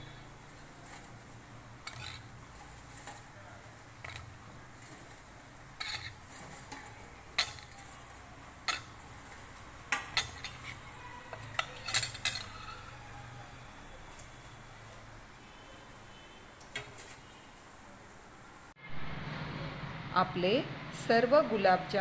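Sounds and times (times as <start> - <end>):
steel ladle clinking against pot: 5.8 - 13.0.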